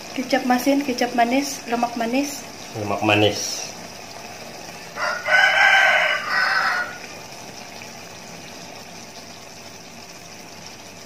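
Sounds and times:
steady background hiss: 0.9s - 5.0s
rooster crowing: 4.8s - 7.2s.

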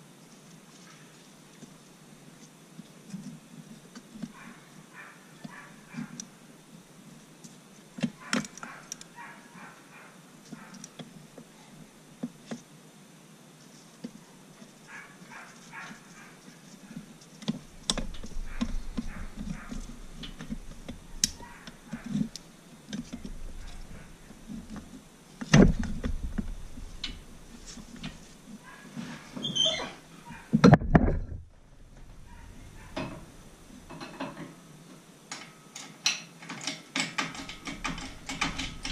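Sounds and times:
metal parts clicking and knocking: 17.4s - 28.5s, 30.6s - 34.6s, 35.3s - 38.9s
low rumble: 30.9s - 33.9s.

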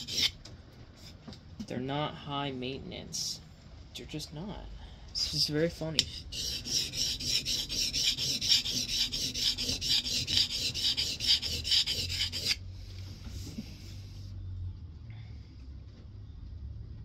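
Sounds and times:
blade scraping on oilstone: 0.0s - 0.4s, 6.0s - 12.6s.

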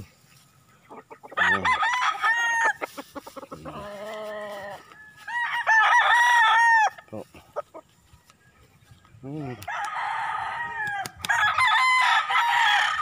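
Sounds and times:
roosters crowing: 0.9s - 13.0s
lower steady rooster call: 9.3s - 13.0s.

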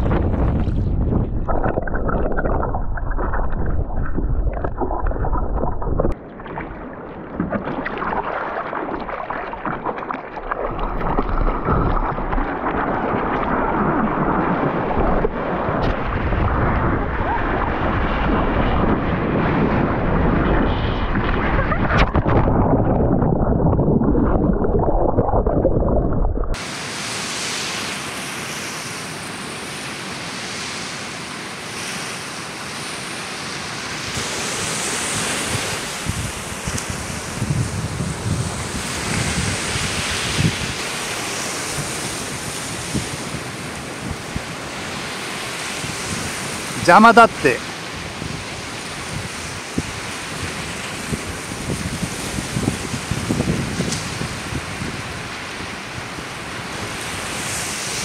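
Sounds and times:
water rushing: 0.0s - 25.7s, 26.5s - 37.4s, 38.6s - 53.4s
hiss of breaking surf: 26.6s - 37.4s.

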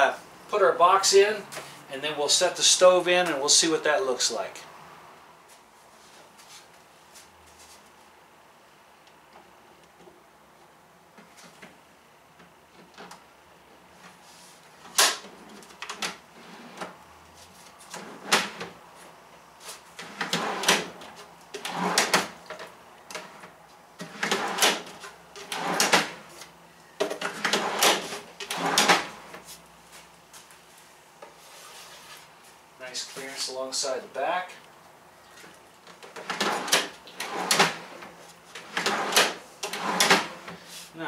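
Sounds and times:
drawer sliding on metal slides: 17.9s - 18.7s, 20.0s - 26.3s, 27.2s - 29.4s, 36.0s - 40.9s.

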